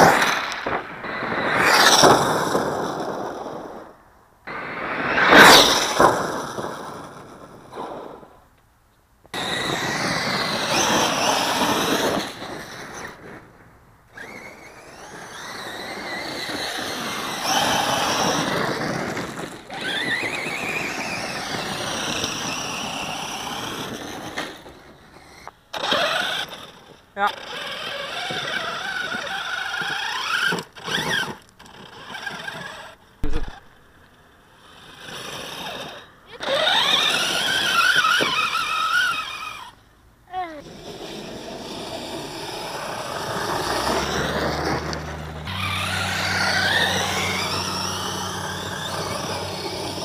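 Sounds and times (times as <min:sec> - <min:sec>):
tyres on gravel: 0:00.0 - 0:39.8, 0:40.4 - 0:50.0
electric motor whine: 0:14.1 - 0:24.6, 0:40.8 - 0:50.0
loud knock of hard landing: 0:33.2 - 0:33.6.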